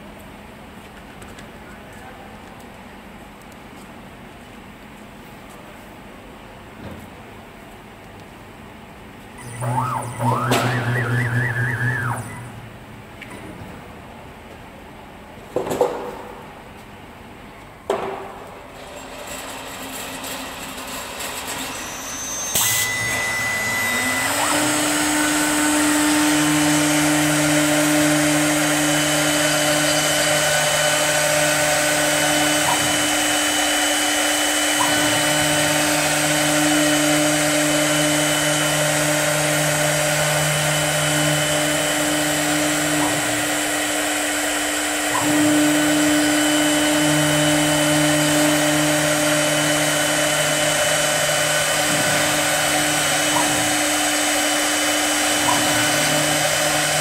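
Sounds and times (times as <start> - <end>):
lathe motor humming: 9.4 - 12.8, 21.8 - 57.0
low drone: 9.4 - 13.0.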